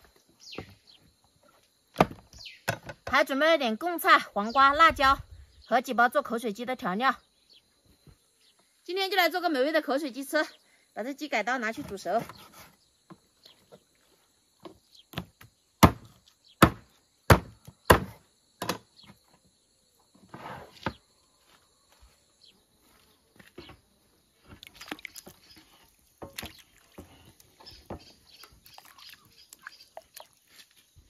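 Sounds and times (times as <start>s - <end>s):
cleaver chopping on wooden board: 2.0s - 3.0s, 15.1s - 18.8s.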